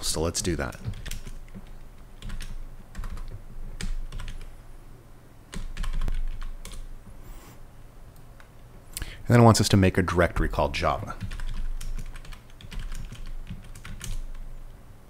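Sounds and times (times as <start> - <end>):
computer keyboard typing: 0.4 - 4.5, 5.5 - 6.9, 11.2 - 14.5.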